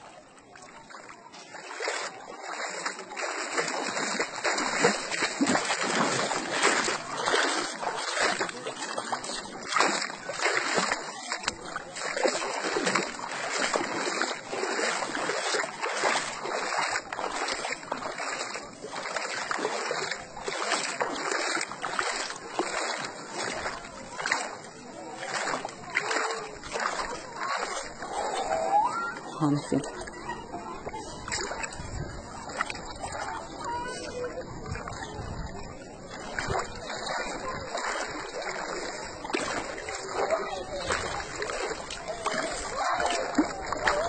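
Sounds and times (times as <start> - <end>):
water splashing and sloshing: 0.0 - 44.0.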